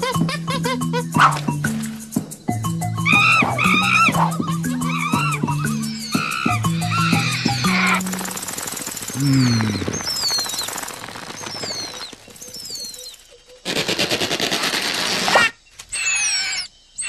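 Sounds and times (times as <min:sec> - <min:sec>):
high falling bird-like chirps: 0:00.8 - 0:13.7, 0:15.4 - 0:17.0
fast rattling clatter: 0:07.1 - 0:15.3.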